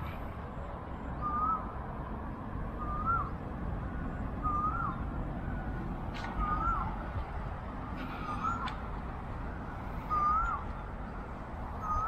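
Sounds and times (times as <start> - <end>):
city traffic rumble: 0.0 - 12.0
bird whistling call: 1.1 - 1.8, 2.8 - 3.4, 4.4 - 5.0, 6.3 - 7.0, 8.1 - 8.8, 10.0 - 10.9, 11.8 - 12.0.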